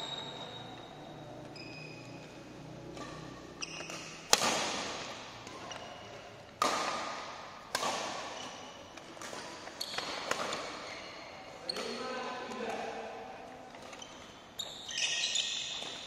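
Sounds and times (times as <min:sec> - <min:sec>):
racket hitting shuttlecock: 0:02.2 - 0:11.1, 0:15.3 - 0:16.0.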